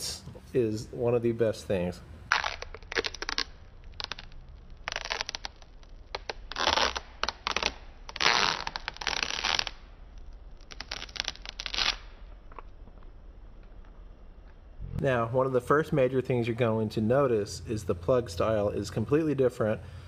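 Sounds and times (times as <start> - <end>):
plastic film peeling and crinkling: 2.3 - 13.4.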